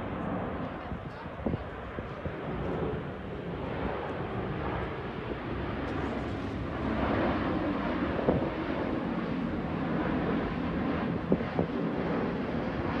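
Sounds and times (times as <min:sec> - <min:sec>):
jet airliner passing overhead: 0:00.0 - 0:13.0.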